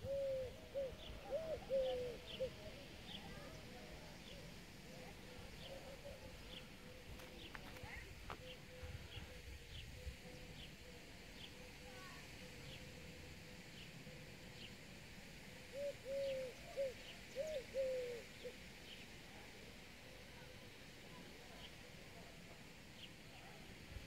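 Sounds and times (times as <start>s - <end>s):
dove cooing: 0.0s - 3.1s, 15.7s - 18.5s.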